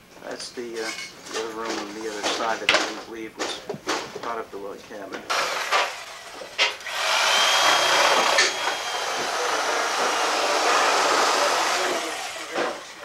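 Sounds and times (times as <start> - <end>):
electric power tool running: 5.3 - 13.0.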